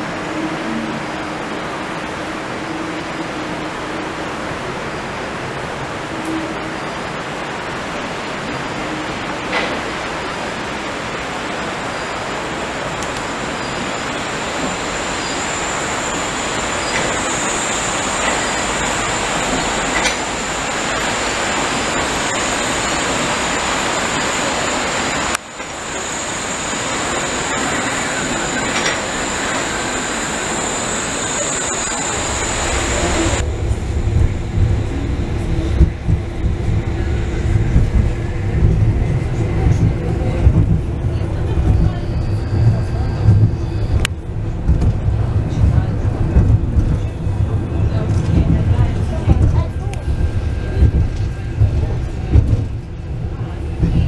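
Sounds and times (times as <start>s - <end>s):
railway car rolling on rail: 0.0s - 54.0s
deep uneven rumble with knocks: 33.4s - 41.9s, 42.6s - 54.0s.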